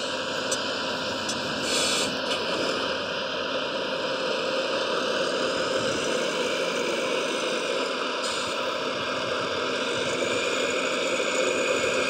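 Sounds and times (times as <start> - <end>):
burst of hiss: 1.6 - 2.2.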